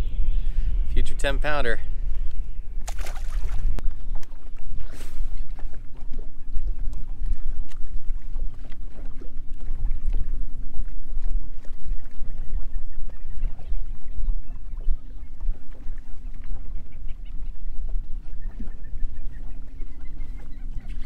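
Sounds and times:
water lapping against boat hull: 0:00.0 - 0:21.0
wind buffeting microphone: 0:00.0 - 0:21.0
small splashes and ticks: 0:02.2 - 0:13.8.

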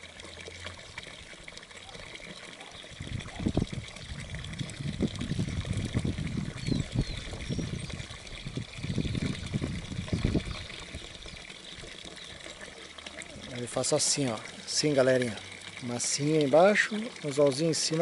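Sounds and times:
water trickling: 0:00.0 - 0:18.0.

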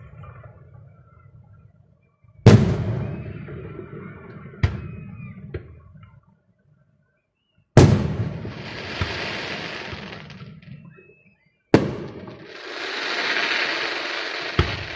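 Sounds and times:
firework booms: 0:02.5 - 0:05.3, 0:07.8 - 0:10.8, 0:11.7 - 0:14.9
rolling echo: 0:02.5 - 0:05.8, 0:07.8 - 0:14.9
sharp firework bang: 0:14.4 - 0:14.9.

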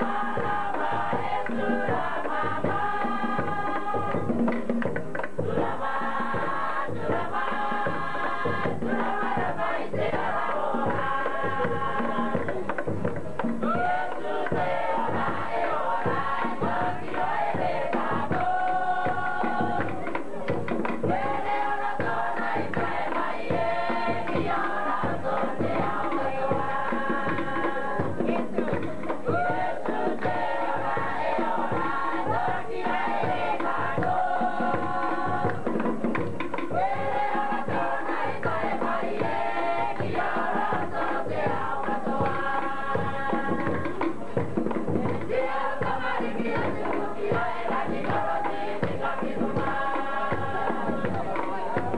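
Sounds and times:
fast drumming: 0:00.0 - 0:51.9
group singing chant-like phrases: 0:00.0 - 0:51.9.

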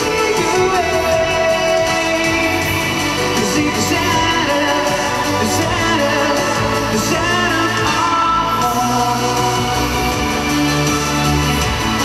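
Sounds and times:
pop-rock song with male vocal: 0:00.0 - 0:12.0.

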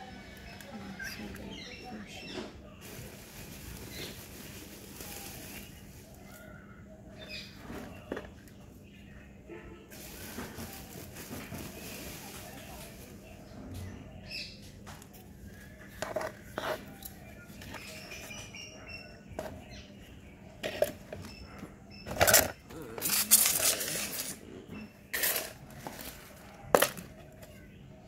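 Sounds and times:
trowel scraping potting mix: 0:15.8 - 0:18.1, 0:22.1 - 0:27.3.

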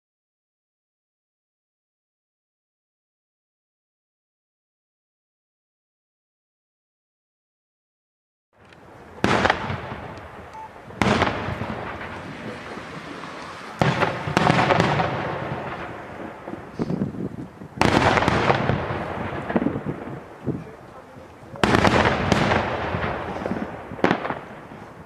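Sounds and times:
firework shells bursting with echo: 0:08.6 - 0:17.1, 0:17.8 - 0:20.4, 0:21.6 - 0:25.0
small firework pops: 0:21.6 - 0:24.6.

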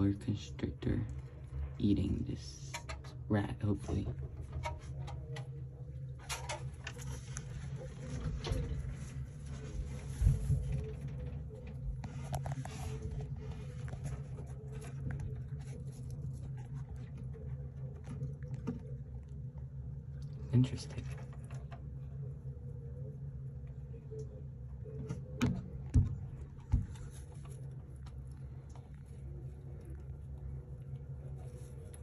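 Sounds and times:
steady low hum: 0:00.0 - 0:32.0
rat pattering on substrate: 0:06.2 - 0:19.6, 0:26.3 - 0:32.0.

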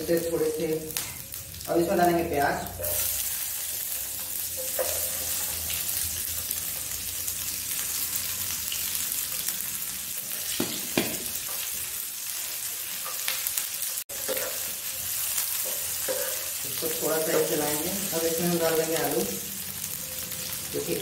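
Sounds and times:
onions sizzling in hot oil: 0:00.0 - 0:21.0
steel ladle stirring in pan: 0:02.8 - 0:05.5.

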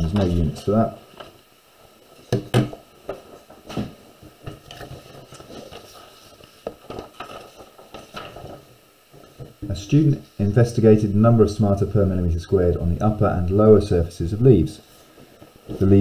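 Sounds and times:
paper shuffling on desk: 0:00.0 - 0:01.4, 0:02.0 - 0:09.6, 0:14.8 - 0:16.0.

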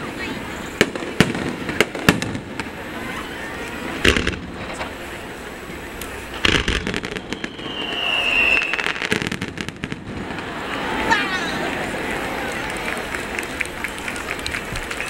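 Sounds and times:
fireworks bangs and crackles: 0:00.0 - 0:15.0
high firework whistle: 0:06.0 - 0:09.7.

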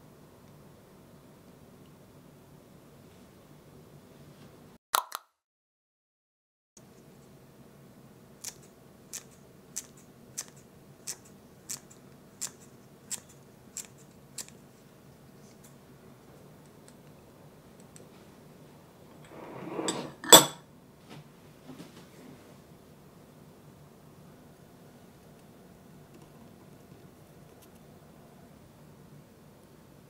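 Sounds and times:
scissors snipping: 0:08.4 - 0:14.6.

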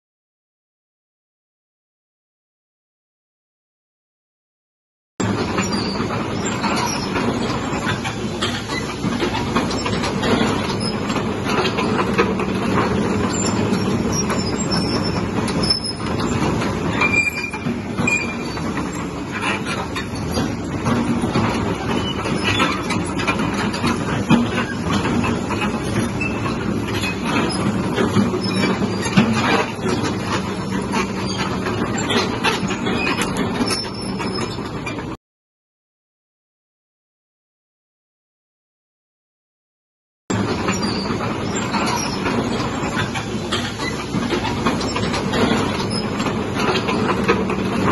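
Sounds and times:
track chains clanking: 0:05.2 - 0:35.1.

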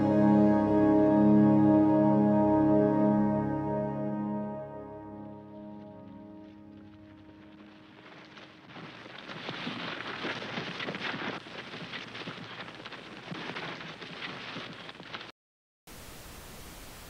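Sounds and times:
held music chord: 0:00.0 - 0:07.6
crackling film soundtrack hiss: 0:05.0 - 0:15.2, 0:15.9 - 0:17.0.

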